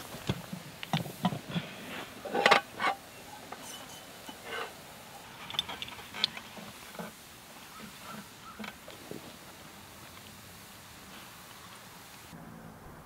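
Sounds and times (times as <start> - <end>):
utensil clinking on metal pot: 2.3 - 4.8.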